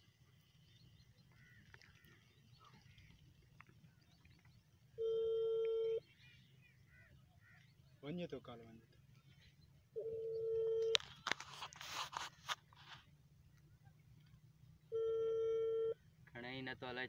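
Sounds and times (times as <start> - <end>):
phone call tone beep: 5.0 - 6.0, 10.0 - 11.0, 14.9 - 16.0.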